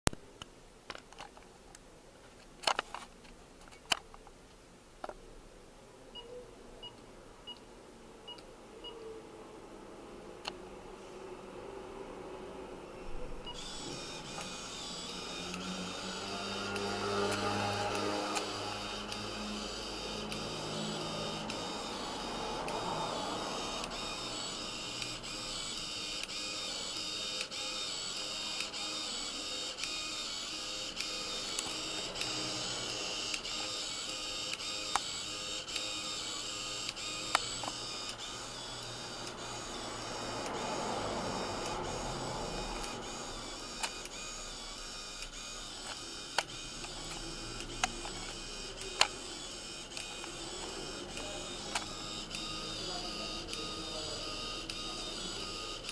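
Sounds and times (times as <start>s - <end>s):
paper-roll printer whirring: 13.1s - 55.9s
printer ticking: 13.4s - 55.9s
sharp printer clicks: 13.4s - 55.9s.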